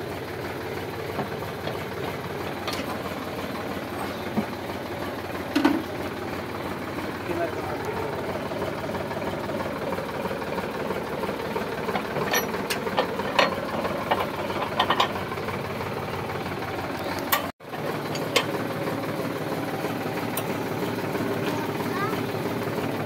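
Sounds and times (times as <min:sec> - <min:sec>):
tractor diesel engine idling: 0:00.0 - 0:23.0
metal clinks and clanks: 0:12.2 - 0:15.2.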